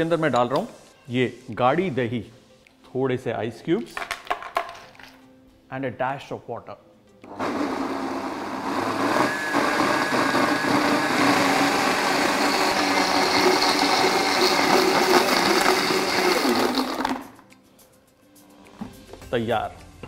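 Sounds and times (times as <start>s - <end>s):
blender chopping ice: 7.3s - 17.3s.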